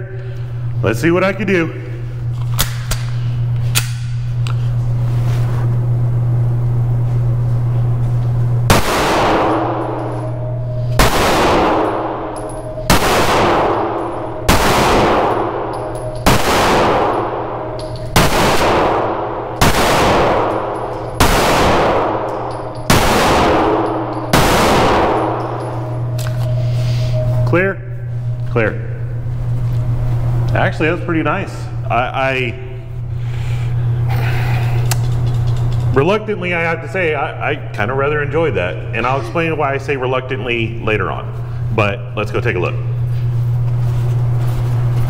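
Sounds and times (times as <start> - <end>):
steady low hum: 0.0 - 45.0
pistol shots echoing indoors: 8.7 - 27.4.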